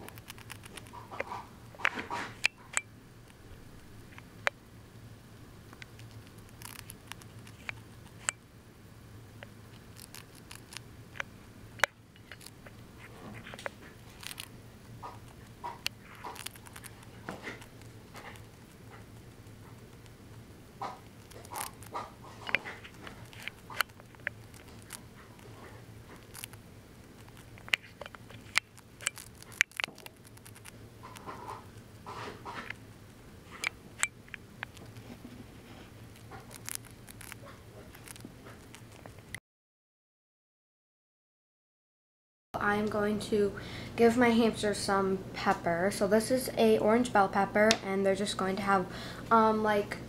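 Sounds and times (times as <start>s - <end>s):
hamster gnawing food: 0.0s - 2.7s, 5.7s - 8.4s, 9.4s - 39.3s.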